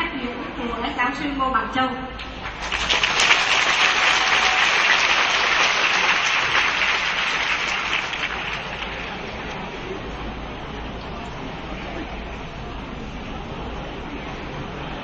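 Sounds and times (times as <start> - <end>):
audience applauding: 2.3 - 10.0.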